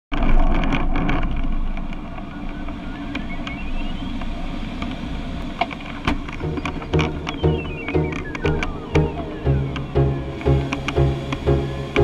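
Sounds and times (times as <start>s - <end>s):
glider cockpit rumble: 3.2s - 12.0s
airflow noise: 6.2s - 12.0s
faint rising beeping tone: 6.4s - 12.0s.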